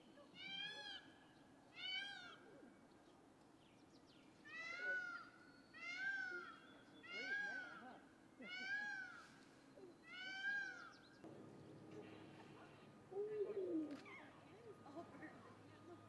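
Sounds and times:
lion cubs calling: 10.0 - 11.0.

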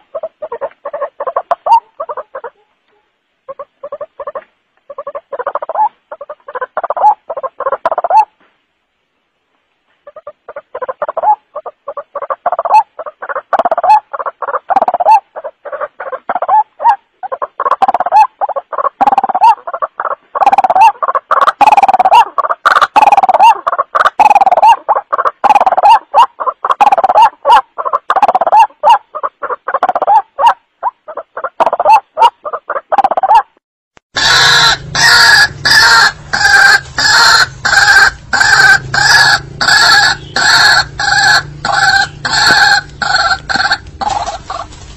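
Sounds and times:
distorted recorded bird calls: 0.0 - 8.5, 9.9 - 44.9
recorded bird croaking calls: 0.0 - 8.5, 9.9 - 44.9.

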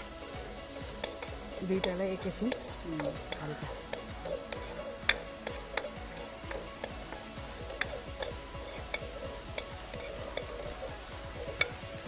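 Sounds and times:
garlic and onion sizzling in butter: 0.0 - 12.0
utensil scraping a frying pan: 0.0 - 12.0.

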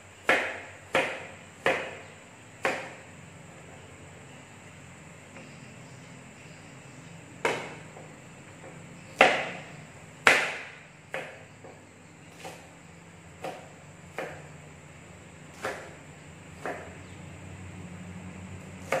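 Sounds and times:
knife chopping on cutting board: 0.2 - 3.0, 7.4 - 12.7, 13.4 - 14.5, 15.5 - 16.0, 16.6 - 17.0, 18.8 - 19.0.

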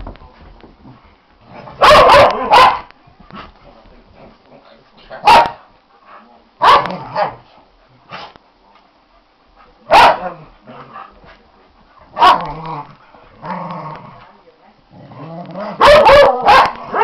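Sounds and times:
dogs barking sharply: 1.8 - 2.9, 5.2 - 5.6, 6.6 - 7.4, 9.9 - 10.3, 12.2 - 12.5, 15.8 - 17.0.

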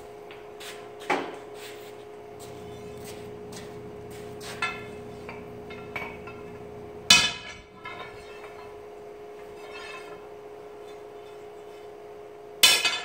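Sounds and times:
steady hum: 0.0 - 13.0
steel bar clanging on metal: 7.1 - 8.8, 9.5 - 10.3, 12.6 - 13.0.

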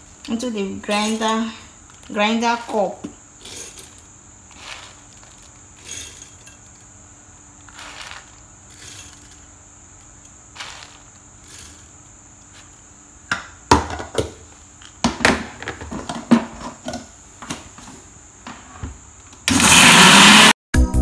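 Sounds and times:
seeds clattering into plastic cup: 0.2 - 12.9
electric blender running: 19.5 - 20.6.

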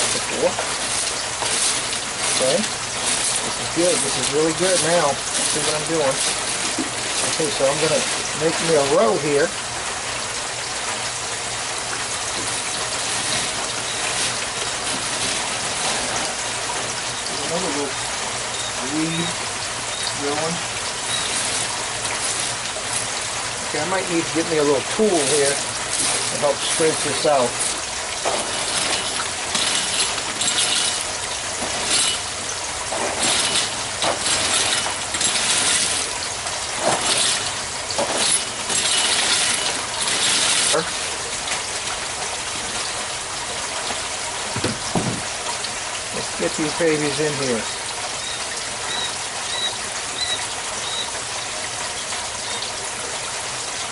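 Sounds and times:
rocks clinking and grating: 0.0 - 9.5, 12.3 - 43.0
water pouring from pipe: 0.0 - 53.9.

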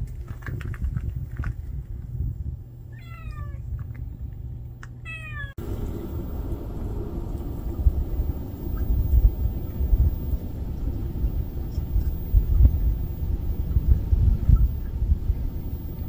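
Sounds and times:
low rumble: 0.0 - 16.0
cat meowing: 2.9 - 3.6, 5.0 - 5.6.

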